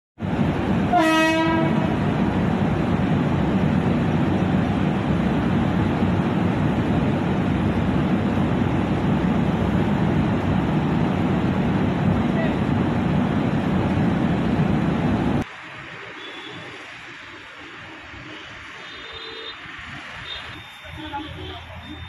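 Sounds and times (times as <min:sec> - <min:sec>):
moving train rumble: 0:00.2 - 0:22.0
train horn: 0:00.9 - 0:02.0.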